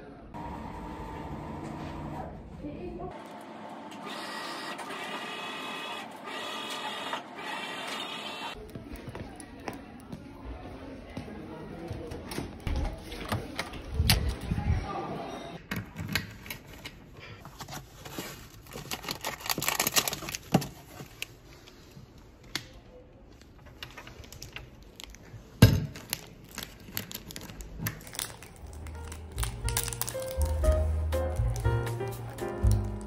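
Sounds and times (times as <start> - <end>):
packaging rustling and crinkling: 16.5 - 22.0, 23.4 - 33.0
snack wrapper crinkling: 18.4 - 20.5, 26.0 - 33.0.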